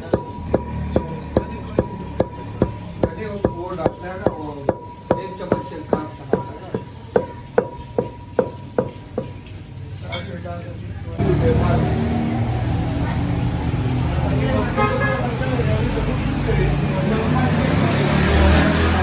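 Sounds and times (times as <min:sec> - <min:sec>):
metal pestle pounding in mortar: 0:00.0 - 0:09.4.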